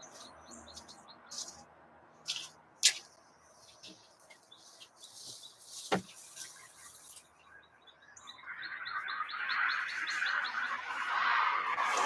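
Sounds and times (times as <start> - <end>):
songbirds chirping: 0.0 - 12.0
rustling: 2.3 - 7.3.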